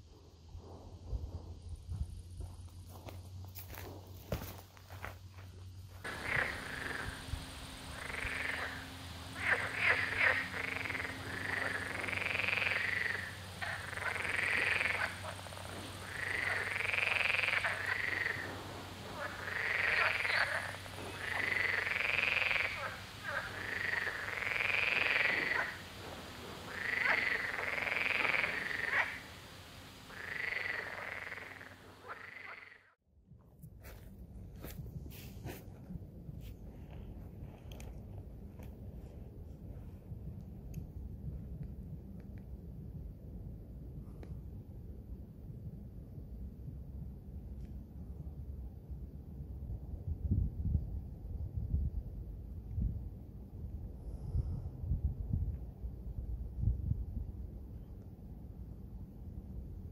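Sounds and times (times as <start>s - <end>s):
frogs croaking: 6.0s - 33.0s.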